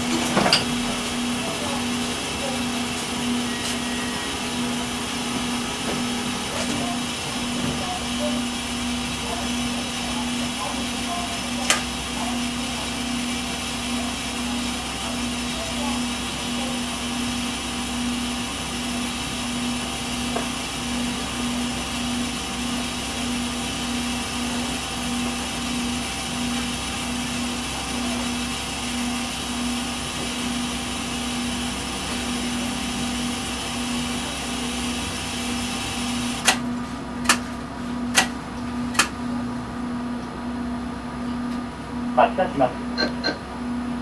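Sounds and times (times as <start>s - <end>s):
low pulsing tone: 0.0s - 37.2s
machine hum and hiss: 0.0s - 44.0s.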